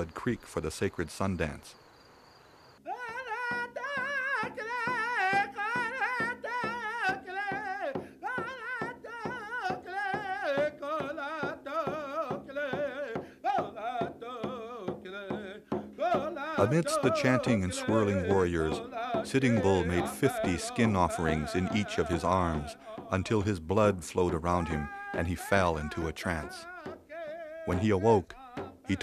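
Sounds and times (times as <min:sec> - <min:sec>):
steady drumbeat: 0:13.6 - 0:27.1, 0:27.7 - 0:29.0.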